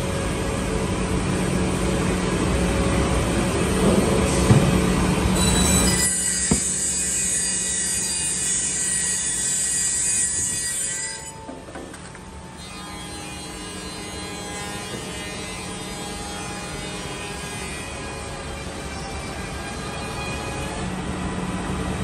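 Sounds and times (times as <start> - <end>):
saw whining through wood: 5.3 - 11.6, 12.6 - 20.9.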